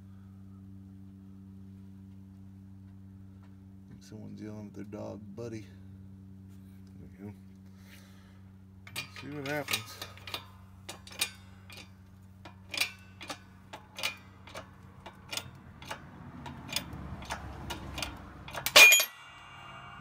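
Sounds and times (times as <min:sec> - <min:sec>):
steady low hum: 0:00.0 - 0:20.0
low strain: 0:08.8 - 0:20.0
sharp metallic clicks: 0:08.9 - 0:20.0
loud sharp metal crack: 0:12.6 - 0:20.0.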